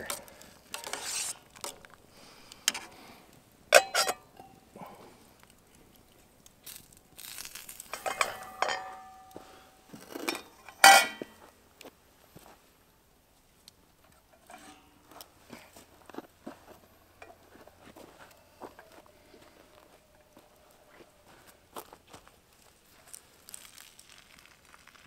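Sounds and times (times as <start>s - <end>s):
metal pot lid clanking: 3.7s - 4.5s, 7.9s - 9.4s, 10.3s - 11.3s
metal spoon clinking on pot: 3.7s - 4.6s, 7.9s - 9.4s, 10.3s - 11.3s.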